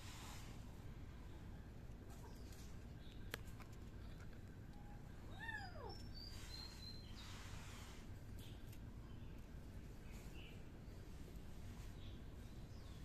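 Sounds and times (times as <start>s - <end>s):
kitten meowing: 5.3s - 6.0s.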